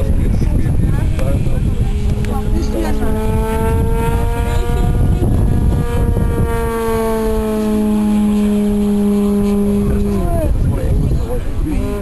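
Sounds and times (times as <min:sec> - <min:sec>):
low rumble: 0:00.0 - 0:12.0
model plane motor humming: 0:00.9 - 0:12.0.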